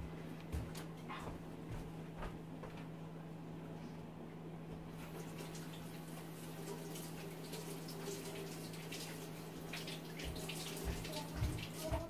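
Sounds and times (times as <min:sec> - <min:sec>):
steady low hum: 0:00.0 - 0:12.0
tap running over hands: 0:10.2 - 0:12.0.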